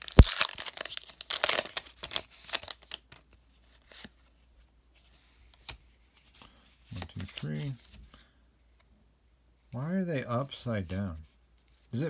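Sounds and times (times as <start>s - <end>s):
foil wrapper tearing and crinkling: 0.0s - 3.2s.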